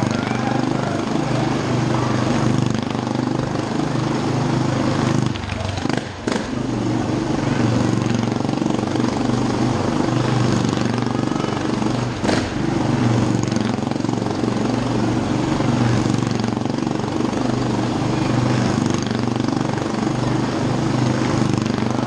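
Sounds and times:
motorcycle engine drone: 0:00.0 - 0:22.0
sharp crack: 0:12.1 - 0:13.3.

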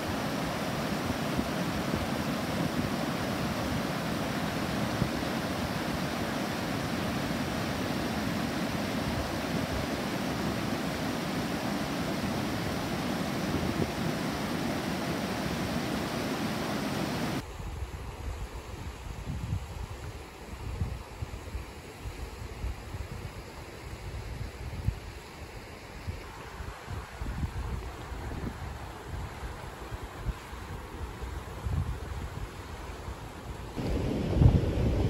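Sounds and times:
stream pouring over weir: 0:00.0 - 0:17.4.

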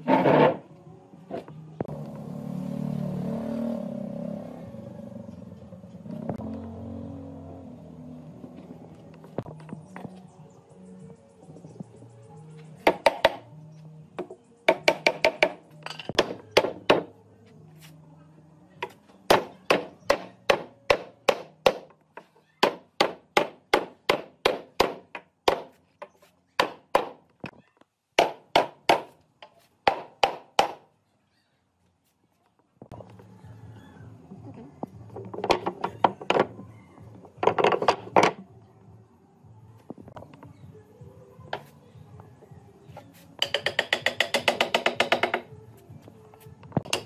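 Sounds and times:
faint background music: 0:00.0 - 0:47.0
hammering on wood: 0:12.8 - 0:13.4, 0:14.2 - 0:15.6, 0:16.2 - 0:17.1, 0:19.3 - 0:21.9, 0:22.6 - 0:25.8, 0:26.6 - 0:27.2, 0:28.2 - 0:29.2, 0:29.8 - 0:30.8, 0:43.4 - 0:45.5.

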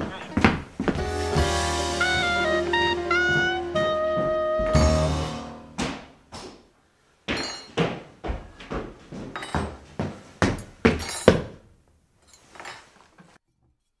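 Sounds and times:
sharp knocks and thuds: 0:05.8 - 0:06.6.

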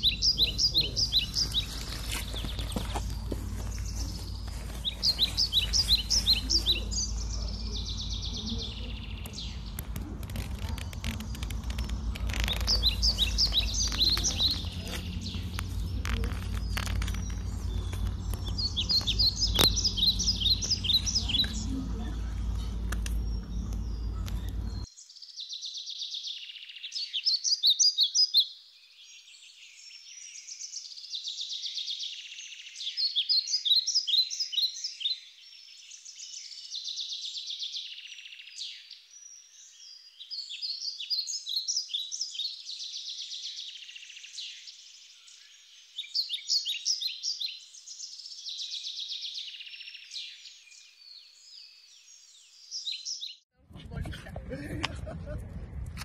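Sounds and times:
low steady rumble: 0:00.0 - 0:24.9, 0:53.6 - 0:56.0
songbirds chirping: 0:00.0 - 0:55.4.

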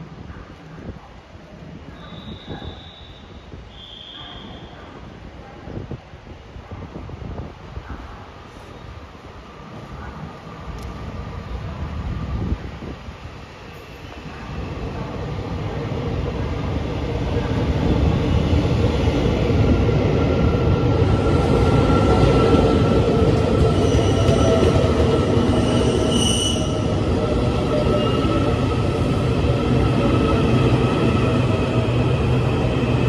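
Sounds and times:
short high squeal: 0:02.0 - 0:04.8, 0:25.8 - 0:26.8
train wheel noise: 0:09.6 - 0:33.0.

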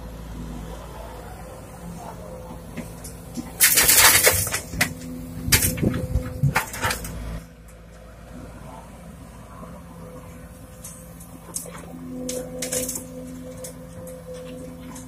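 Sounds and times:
excavator diesel engine running: 0:00.0 - 0:15.0
earth falling into truck bed: 0:03.3 - 0:07.2.

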